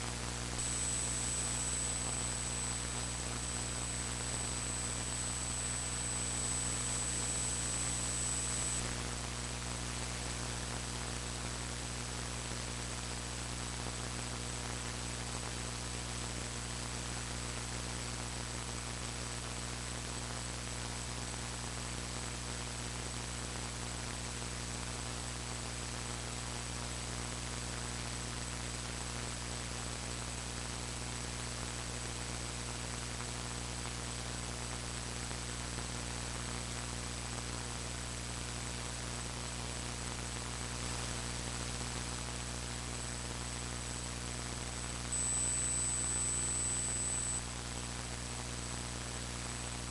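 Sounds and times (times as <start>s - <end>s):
thin high whine: 0.0s - 9.2s, 44.0s - 47.8s
electrical hum and hiss: 0.0s - 49.9s.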